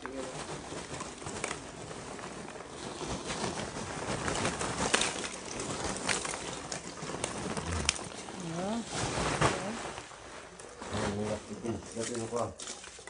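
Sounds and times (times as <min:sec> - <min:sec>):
fire crackles and pops: 0:00.0 - 0:11.4
steady rustling noise: 0:00.0 - 0:13.0.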